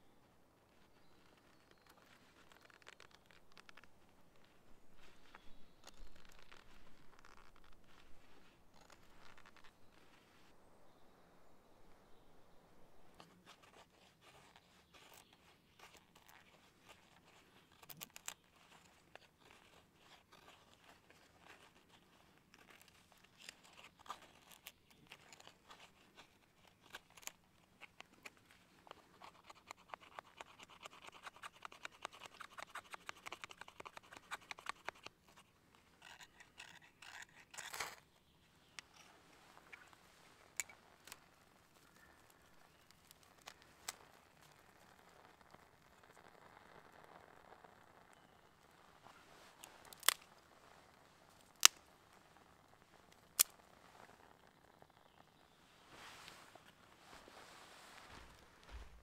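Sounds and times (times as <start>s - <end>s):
knife shaving a stick: 0.7s - 10.5s, 13.2s - 38.1s, 38.9s - 55.2s.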